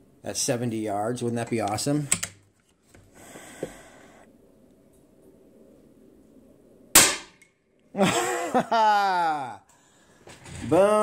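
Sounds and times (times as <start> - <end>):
air rifle shot: 6.9 - 7.4.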